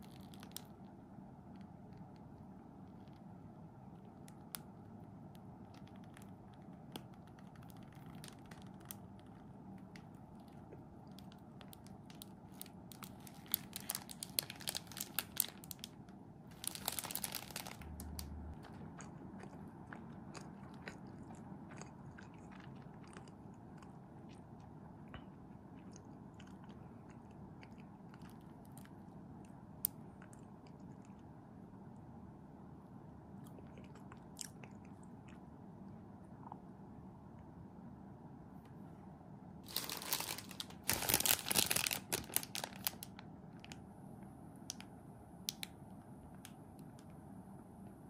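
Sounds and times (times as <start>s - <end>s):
chewing crunchy fried bread: 5.6s - 31.4s, 33.4s - 35.6s, 39.7s - 43.8s.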